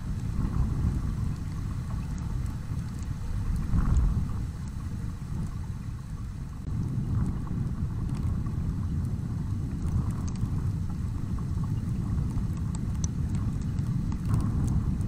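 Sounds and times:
faint ticks: 0:00.0 - 0:15.0
wind buffeting microphone: 0:00.0 - 0:15.0.

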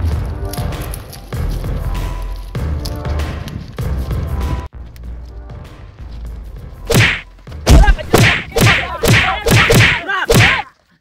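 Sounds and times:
hard whacks and thuds: 0:06.9 - 0:10.6.

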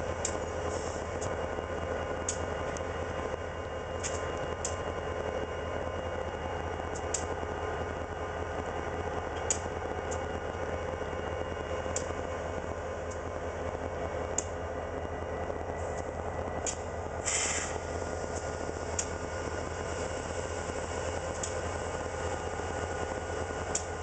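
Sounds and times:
diesel locomotive idling: 0:00.0 - 0:24.0.

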